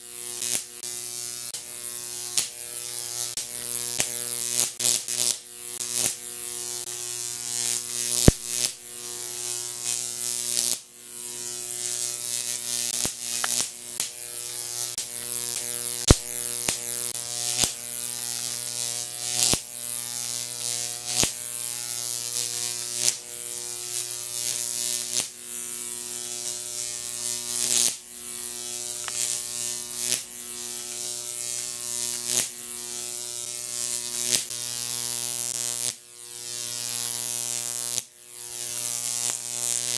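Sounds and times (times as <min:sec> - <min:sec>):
electric arc buzzing: 0:00.0 - 0:39.9
electric arc snapping: 0:00.1 - 0:39.9.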